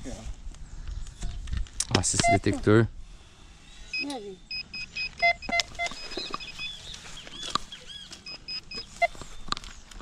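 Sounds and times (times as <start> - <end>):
metal detector beeping: 2.1 - 2.6, 3.9 - 9.6.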